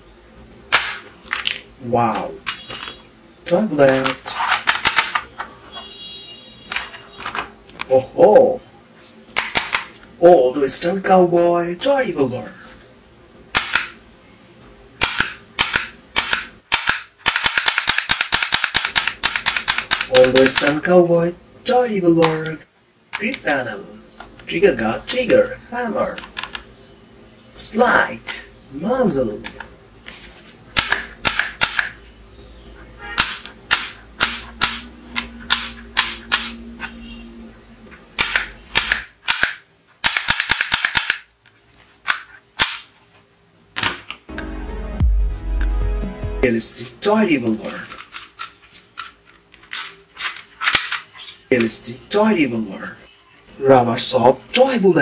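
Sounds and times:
toy revolver clicking: 0:15.0 - 0:20.7, 0:35.5 - 0:36.6, 0:38.2 - 0:41.2.

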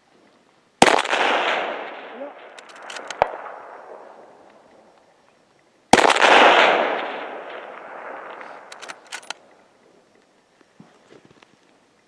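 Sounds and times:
rifle shot echoing: 0:00.8 - 0:05.0, 0:05.9 - 0:09.6
sharp clicks: 0:02.4 - 0:03.4, 0:07.0 - 0:09.6.

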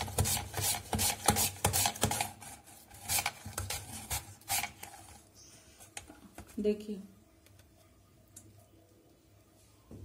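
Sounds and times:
potato rasping on slicer blade: 0:00.0 - 0:05.0.

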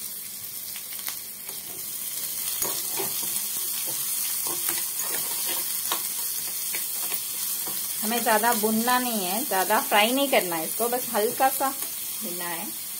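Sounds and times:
vegetables sizzling in hot oil: 0:00.0 - 0:12.9
steel spoon scraping pan: 0:02.6 - 0:06.0.

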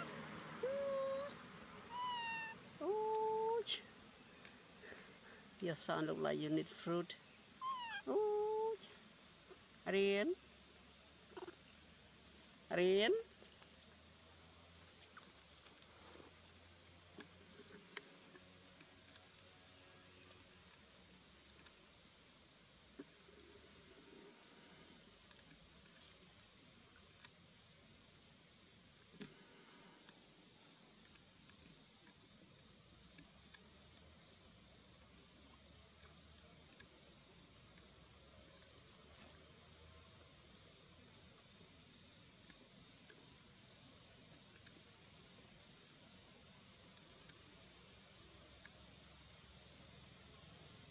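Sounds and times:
insects buzzing: 0:00.0 - 0:50.9.

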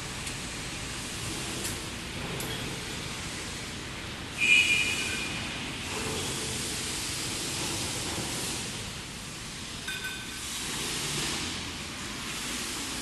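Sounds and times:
factory workshop background noise: 0:00.0 - 0:13.0.

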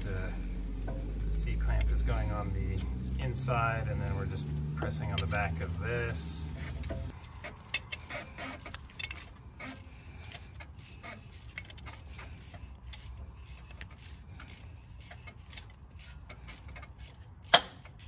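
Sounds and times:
metallic clicks of clamp screwing: 0:01.7 - 0:02.0, 0:06.5 - 0:18.0.

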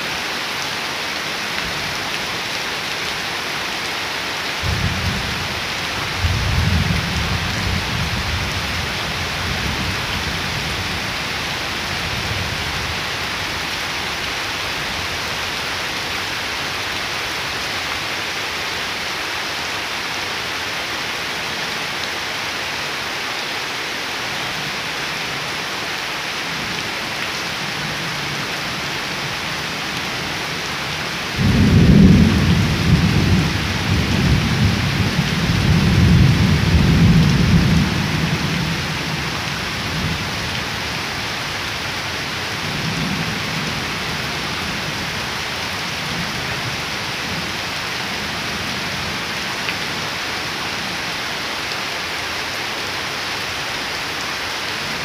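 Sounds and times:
heavy rain pattering: 0:00.0 - 0:55.0
low thunder rumble: 0:31.4 - 0:38.6.

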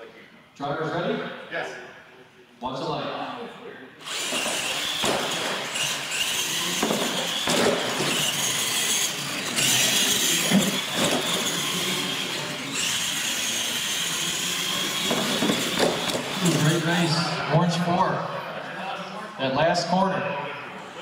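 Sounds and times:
electric motors whining: 0:04.0 - 0:17.5.

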